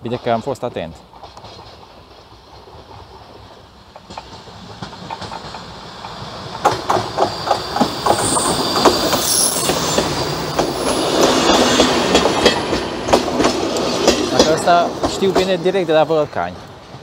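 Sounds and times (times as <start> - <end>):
train passing: 0.0 - 17.0
wheels clacking over rail joints: 0.0 - 17.0
high-pitched wheel squeals: 5.9 - 11.2.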